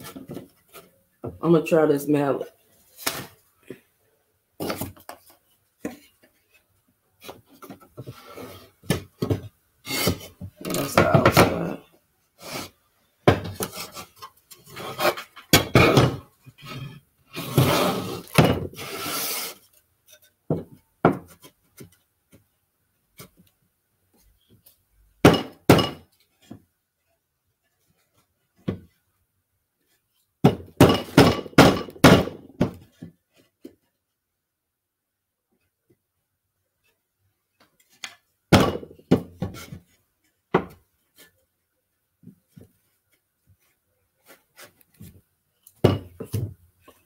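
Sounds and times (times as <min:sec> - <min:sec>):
mallet knocking wooden panels: 0:30.4 - 0:32.8.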